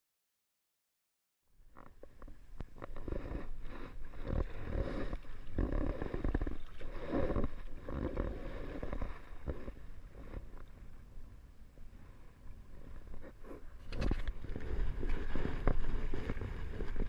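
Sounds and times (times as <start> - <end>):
kayak paddle splashing: 2.7 - 11.0, 12.8 - 17.0
water slapping against hull: 13.8 - 17.0.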